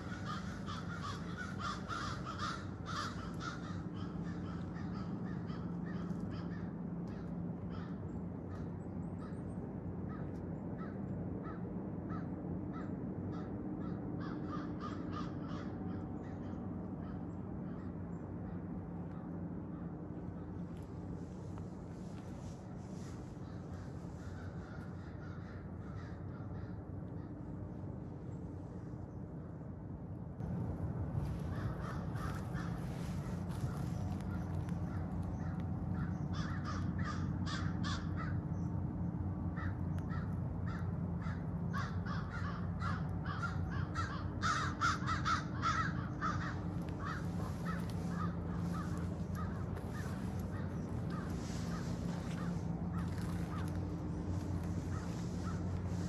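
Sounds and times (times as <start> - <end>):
crows cawing: 0.0 - 9.4, 10.0 - 27.8, 31.1 - 56.0
steady low hum: 0.0 - 56.0.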